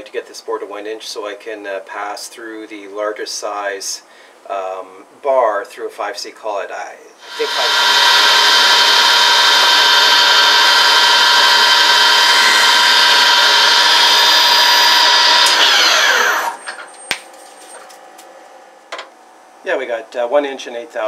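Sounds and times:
lathe whining: 7.2s - 16.9s.

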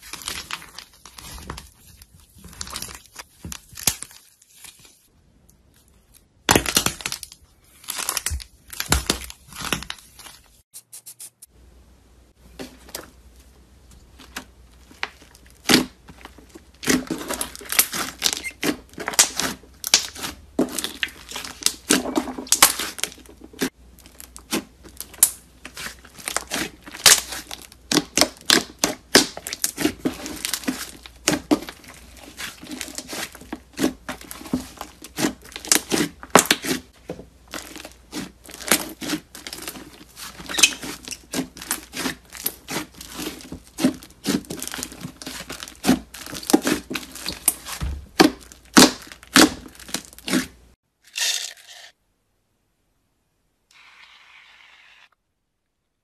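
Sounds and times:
slime crackling and popping: 16.7s - 23.1s, 24.0s - 36.8s, 37.5s - 50.5s.

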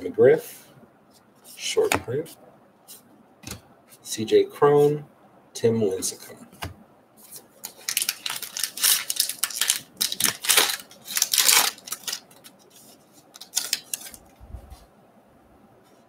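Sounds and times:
card pack wrapper tearing and crinkling: 7.6s - 14.3s.

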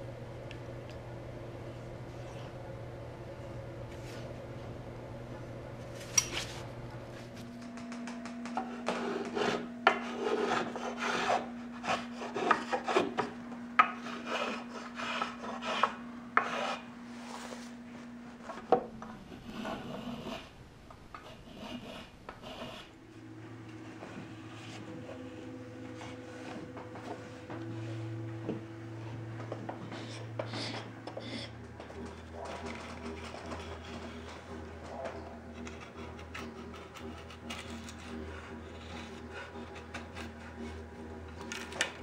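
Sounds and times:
wood scraping on wood: 8.6s - 20.5s, 21.2s - 28.6s, 29.4s - 42.0s.

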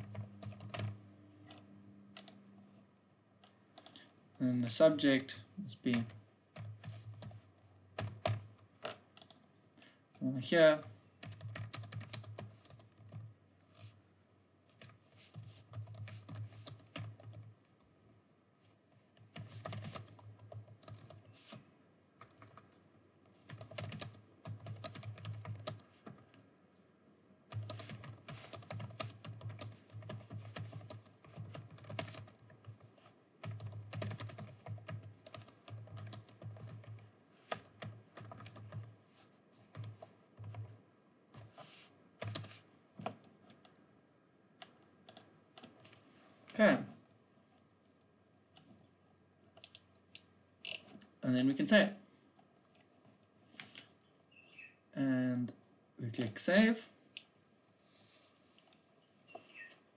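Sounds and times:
computer keyboard typing: 0.0s - 1.0s, 2.2s - 2.4s, 5.9s - 7.4s, 8.0s - 9.5s, 11.2s - 13.3s, 14.7s - 17.6s, 18.9s - 21.6s, 22.2s - 22.8s, 23.4s - 26.2s, 27.5s - 38.9s, 39.7s - 40.8s, 42.2s - 43.2s, 44.6s - 46.0s, 49.5s - 50.0s.

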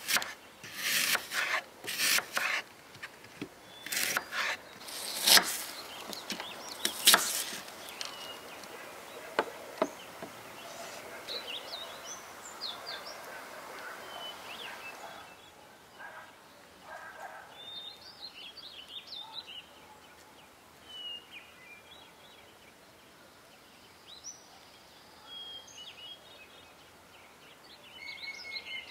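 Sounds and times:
knife slicing an apple: 0.0s - 2.6s, 3.8s - 8.1s
birds chirping: 0.1s - 22.8s.

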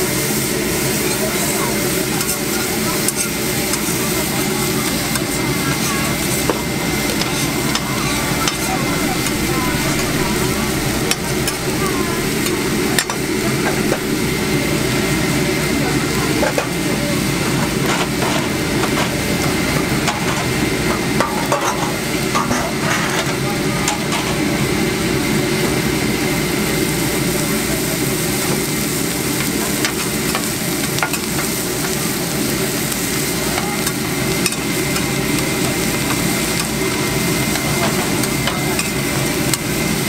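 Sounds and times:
food sizzling on griddle: 0.0s - 40.0s
steady low hum: 7.2s - 19.6s.

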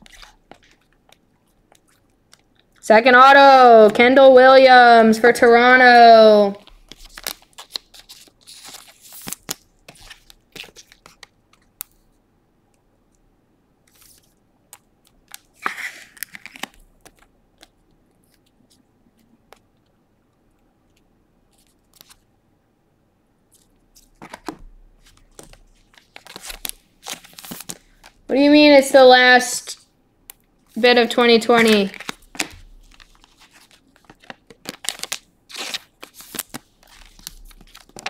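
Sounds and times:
plastic sleeves rustling and crinkling: 0.0s - 3.2s, 6.6s - 12.2s, 13.8s - 19.9s, 20.9s - 22.3s, 23.5s - 28.3s, 30.6s - 38.0s.

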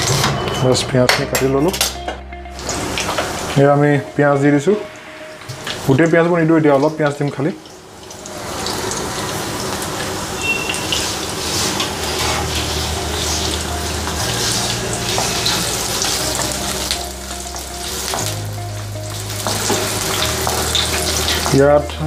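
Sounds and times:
onions sizzling in oil: 4.6s - 22.0s.

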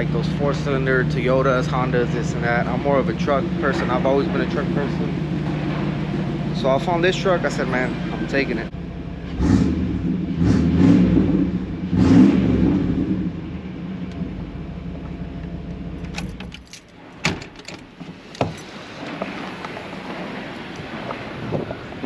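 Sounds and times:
pickup engine idling and revving: 0.0s - 17.2s.

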